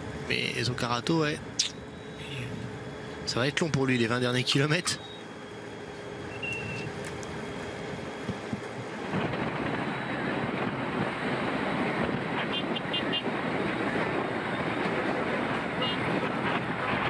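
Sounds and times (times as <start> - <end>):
vehicle engines: 0.0 - 17.0
wind on microphone: 6.4 - 17.0.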